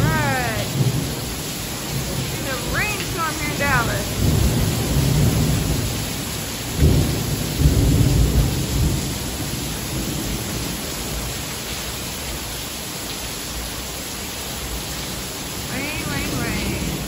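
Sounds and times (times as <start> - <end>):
thunder rolling: 0.0 - 6.1, 6.7 - 10.7
heavy rain pouring: 0.0 - 17.0.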